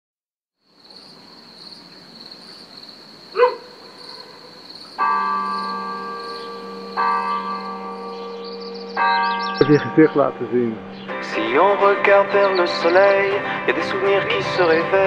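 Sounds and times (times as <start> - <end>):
insects chirring: 0.6 - 10.1
church bell tolling: 5.0 - 12.2.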